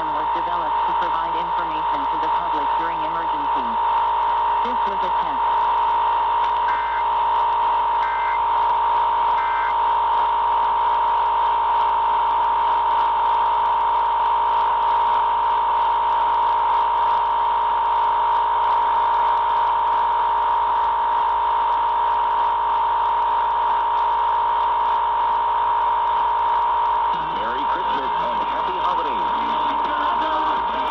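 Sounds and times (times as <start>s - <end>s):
two-tone alarm: 0.0s - 14.0s, 27.1s - 30.9s
radio static hiss: 0.0s - 30.9s
warbling digital data burst: 4.6s - 10.3s.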